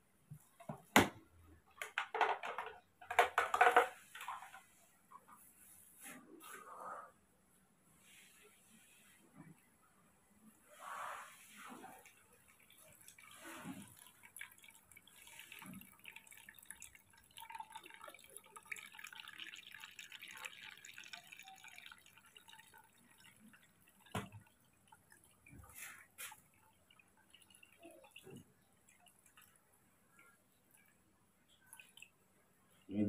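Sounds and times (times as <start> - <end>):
juice trickling and dripping: 11.5 - 32.9.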